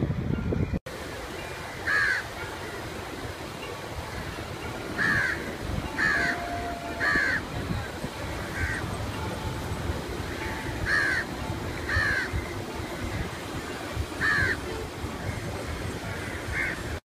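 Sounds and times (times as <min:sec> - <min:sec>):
crows cawing: 0:01.8 - 0:02.3, 0:05.0 - 0:07.5, 0:08.5 - 0:08.8, 0:10.8 - 0:11.3, 0:11.9 - 0:12.5, 0:14.2 - 0:14.6, 0:16.2 - 0:16.9.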